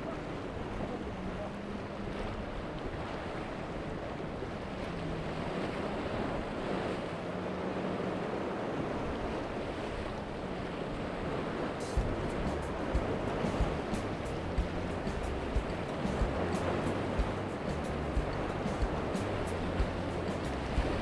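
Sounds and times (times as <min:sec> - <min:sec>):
shallow seawater: 0:00.0 - 0:21.0
wind noise on microphone: 0:08.7 - 0:21.0
music with a beat: 0:11.8 - 0:21.0.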